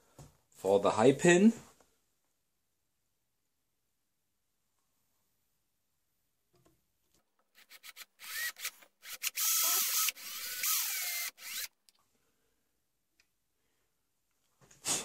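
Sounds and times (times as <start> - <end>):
power drill boring into wood: 7.5 - 11.8.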